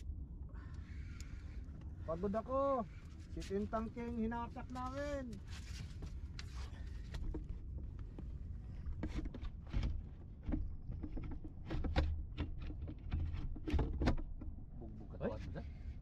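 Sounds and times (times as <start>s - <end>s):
boat engine low rumble: 0.0s - 16.0s.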